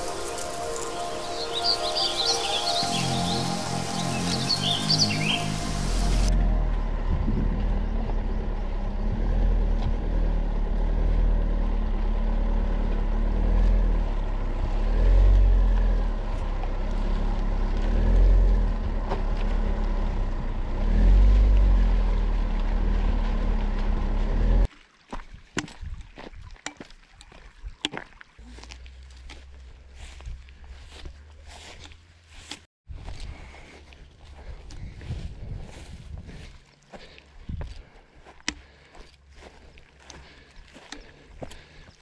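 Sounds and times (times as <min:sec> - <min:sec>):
footsteps on stony track: 0:00.0 - 0:06.3, 0:15.8 - 0:20.0, 0:22.5 - 0:42.0
wind rumble: 0:00.0 - 0:10.8, 0:32.9 - 0:37.9
car engine: 0:00.0 - 0:24.7.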